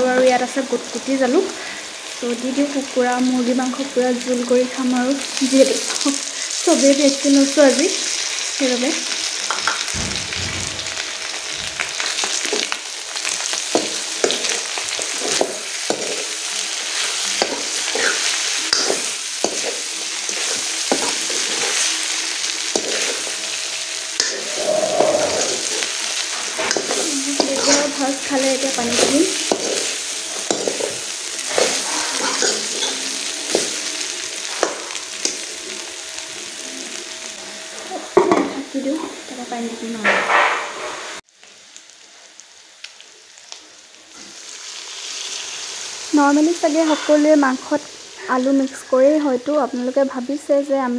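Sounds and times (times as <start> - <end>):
chicken sizzling in a pan: 0.0 - 50.9
steel spoon scraping a pan: 13.4 - 35.8, 46.8 - 47.3.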